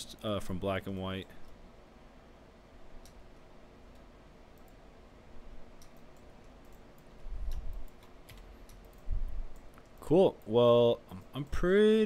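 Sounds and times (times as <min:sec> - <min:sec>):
faint steady hum: 0:00.0 - 0:12.0
computer mouse clicks: 0:03.0 - 0:04.8, 0:05.7 - 0:10.5.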